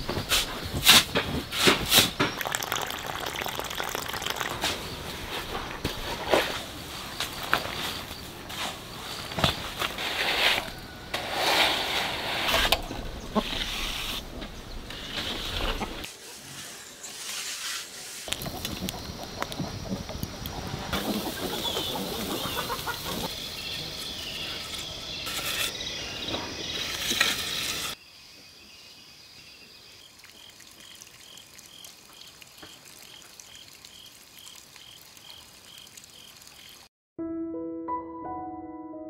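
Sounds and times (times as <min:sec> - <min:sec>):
dense outdoor noise: 0:00.0 - 0:36.8
piano music: 0:37.2 - 0:39.0.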